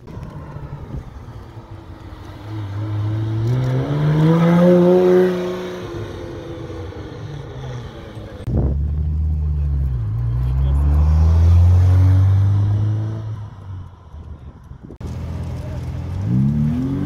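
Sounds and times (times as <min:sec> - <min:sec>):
sports car engine accelerating past: 0:02.1 - 0:13.6.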